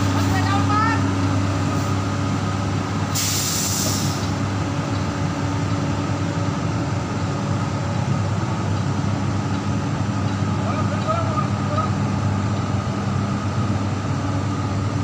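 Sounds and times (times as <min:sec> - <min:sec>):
excavator diesel engine: 0:00.0 - 0:15.0
sharp air hiss: 0:03.1 - 0:04.4.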